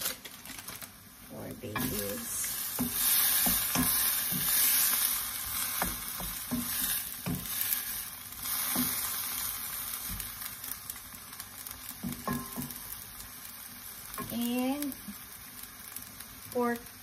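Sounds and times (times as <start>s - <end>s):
meat sizzling in a wok: 0.0s - 17.0s
wooden spatula knocking on pan: 2.8s - 4.6s, 5.8s - 7.6s, 12.0s - 12.8s.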